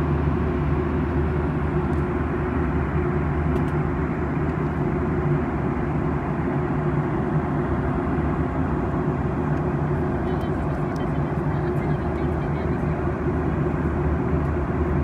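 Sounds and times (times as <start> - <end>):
jet airliner cabin drone: 0.0 - 15.0.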